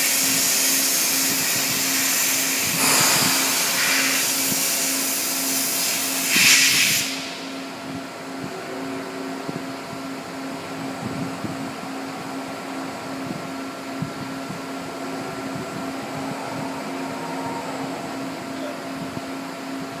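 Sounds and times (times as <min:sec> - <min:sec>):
waterjet cutter hissing: 0:00.0 - 0:07.8
machine hum: 0:07.0 - 0:20.0.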